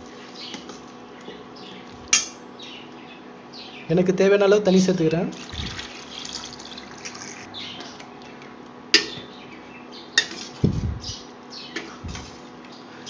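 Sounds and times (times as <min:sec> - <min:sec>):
water pouring into a pan: 0:05.3 - 0:07.5.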